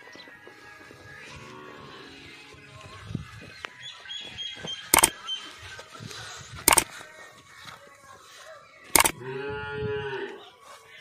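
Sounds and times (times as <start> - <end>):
sharp click sound effects: 4.9 - 5.2, 6.7 - 6.9, 9.0 - 9.2.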